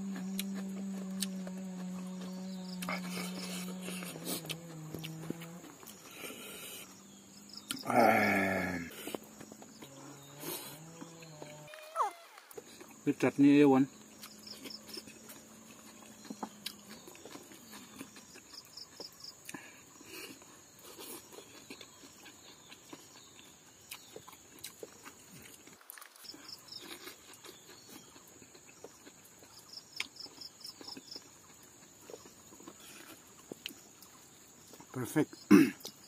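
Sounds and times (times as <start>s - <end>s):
high-pitched insect drone: 0.0s - 16.6s
chewing clicks and smacks: 0.1s - 2.0s, 14.0s - 35.0s.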